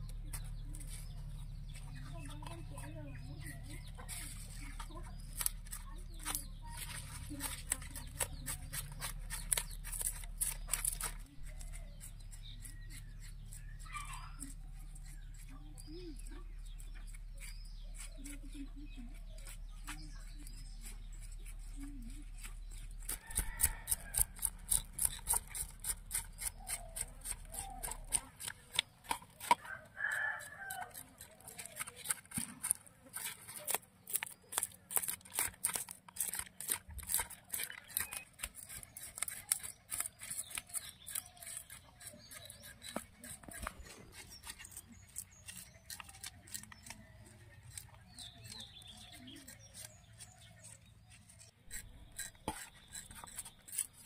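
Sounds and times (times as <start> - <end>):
rooster crowing: 29.6 - 31.0.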